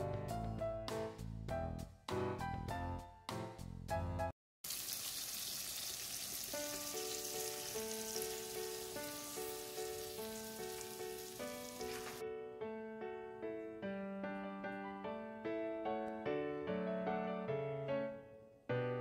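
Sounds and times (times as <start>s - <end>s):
light piano music: 0.0s - 4.3s, 6.5s - 19.0s
food sizzling in a hot pan: 4.6s - 12.2s.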